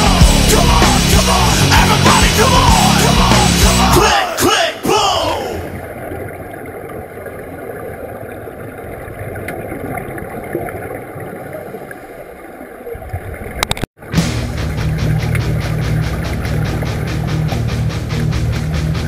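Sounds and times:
rushing water: 0.0s - 19.0s.

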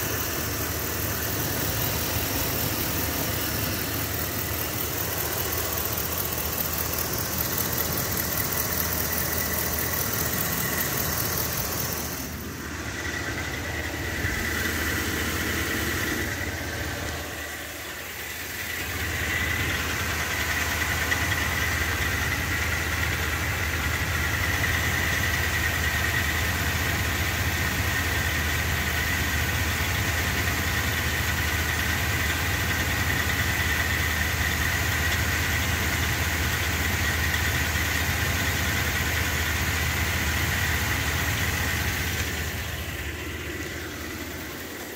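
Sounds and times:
high whine: 0.0s - 20.4s
engine idling: 0.0s - 44.9s.

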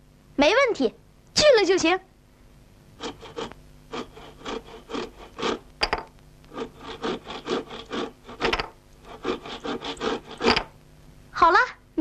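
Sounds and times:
handsaw sawing wood: 3.0s - 5.6s, 6.5s - 10.6s.

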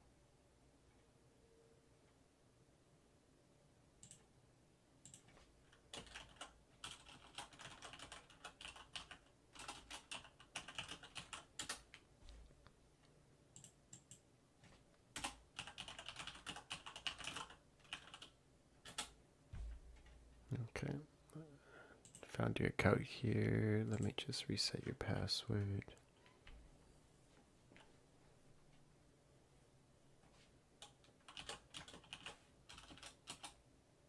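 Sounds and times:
typing on computer keyboard: 4.0s - 4.3s, 5.0s - 12.0s, 13.6s - 19.2s, 30.8s - 33.6s.

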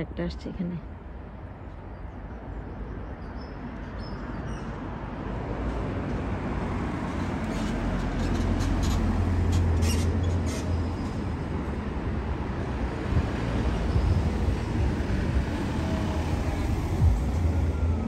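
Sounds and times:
car passing by: 5.2s - 18.0s.

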